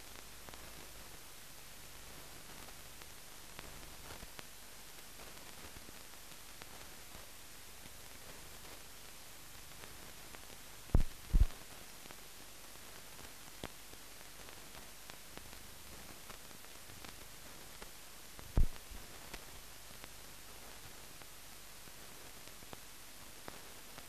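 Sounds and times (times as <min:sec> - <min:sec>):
film hiss: 0:00.0 - 0:24.0
low thumps: 0:11.0 - 0:11.5
faint ticks: 0:13.2 - 0:13.8.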